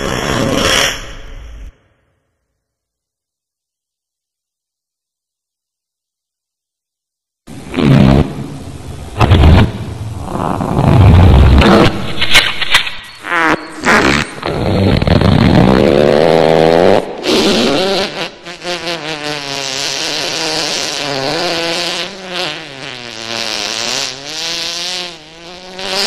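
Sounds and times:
long buzzing fart: 7.5s - 12.2s, 13.2s - 26.0s
low rasping fart: 7.5s - 26.0s.

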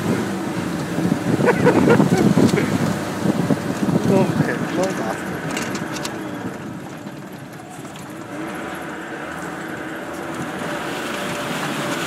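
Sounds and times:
off-road vehicle engine running: 0.0s - 12.0s
sharp rattles: 3.6s - 12.0s.

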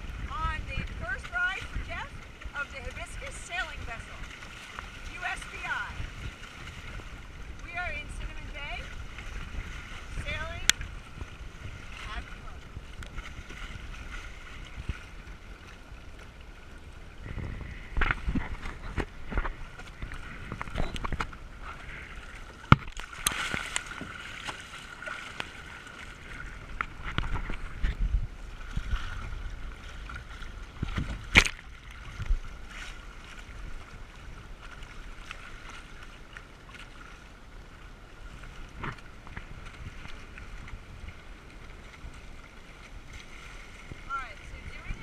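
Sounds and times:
wind rumbling on microphone: 0.0s - 36.0s, 37.6s - 45.0s
water rushing along a hull: 0.0s - 45.0s
sharp water splashes: 17.8s - 27.8s, 28.8s - 33.5s.

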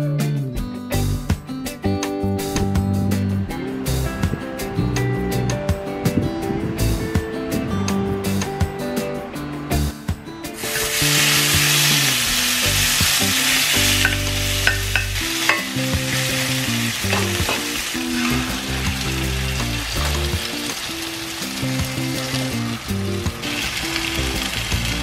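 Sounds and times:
meat sizzling on hot plate: 10.6s - 25.0s
metal spoon clinking on plate: 14.0s - 15.8s.

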